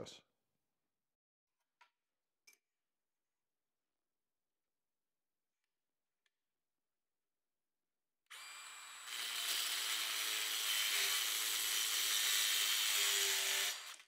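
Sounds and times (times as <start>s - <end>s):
circular saw cutting steel pipe: 8.3s - 14.0s.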